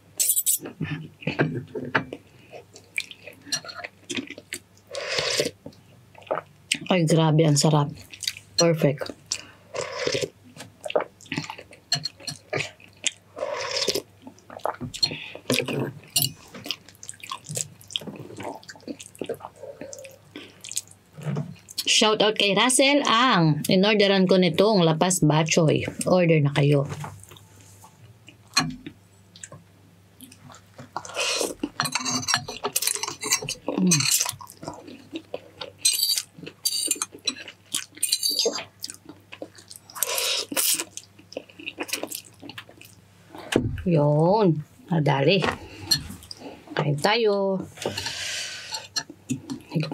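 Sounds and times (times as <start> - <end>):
chewing with mouth clicks: 2.1 - 6.8, 9.0 - 21.9, 30.2 - 43.0
slurping soup: 4.9 - 5.6, 9.8 - 10.4.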